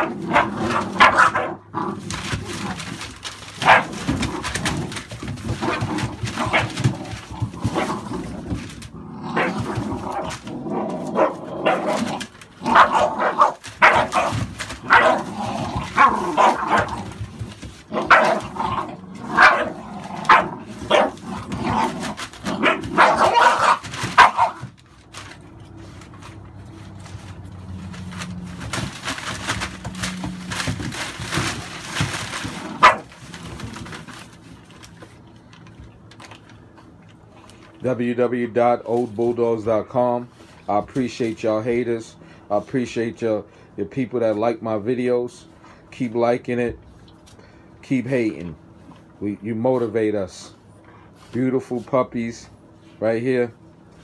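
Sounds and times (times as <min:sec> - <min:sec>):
puppies yappy barking: 0:00.0 - 0:02.6, 0:03.5 - 0:04.7, 0:11.1 - 0:17.1, 0:17.9 - 0:24.8, 0:32.7 - 0:33.2
newspaper rustling: 0:00.1 - 0:38.0.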